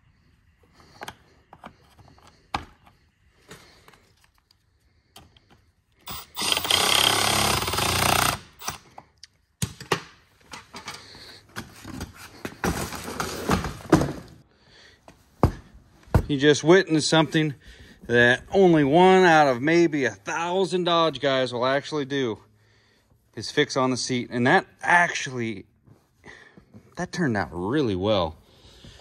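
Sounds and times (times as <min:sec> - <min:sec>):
clicks and knocks of parts: 0:00.8 - 0:06.8, 0:07.6 - 0:14.1
impact driver hammering: 0:06.1 - 0:08.8.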